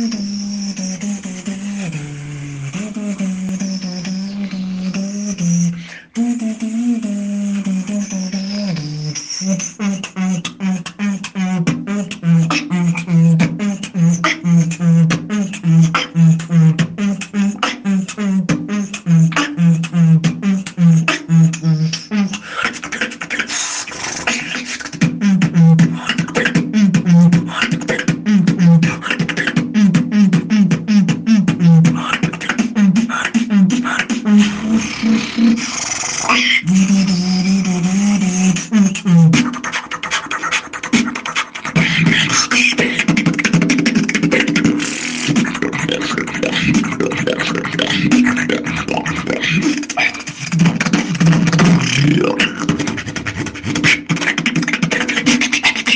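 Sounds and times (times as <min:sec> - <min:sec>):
hummed bass line: 0:00.0 - 0:22.0, 0:32.7 - 0:35.8, 0:42.8 - 0:54.0
beatboxed percussion: 0:00.0 - 0:55.9.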